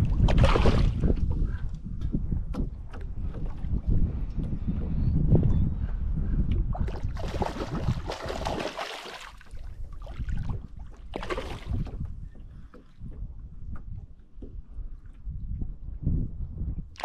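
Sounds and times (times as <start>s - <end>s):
fish splashing in water: 7.1s - 9.6s.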